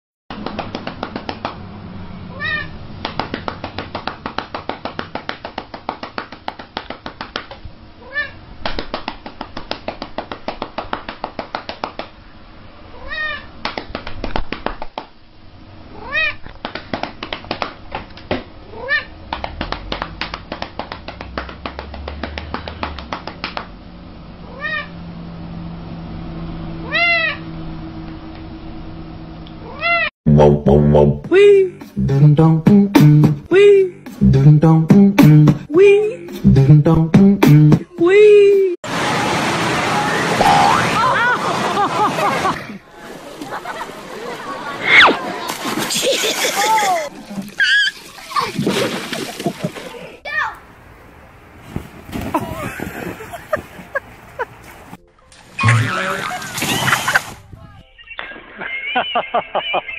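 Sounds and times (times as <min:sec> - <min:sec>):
cat meowing: 0:02.3 - 0:02.7, 0:26.8 - 0:27.4.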